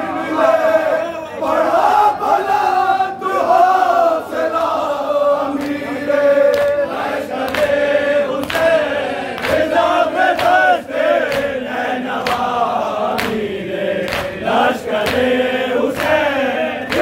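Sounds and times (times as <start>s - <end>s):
lead reciter singing: 0.0s - 17.0s
men chanting a lament: 0.0s - 17.0s
hands slapping on chests: 6.5s - 6.8s, 7.4s - 7.8s, 8.4s - 17.0s.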